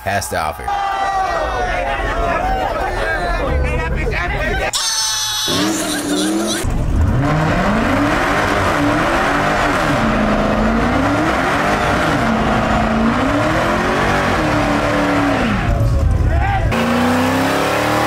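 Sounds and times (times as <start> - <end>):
car engine revving: 5.5 - 18.0.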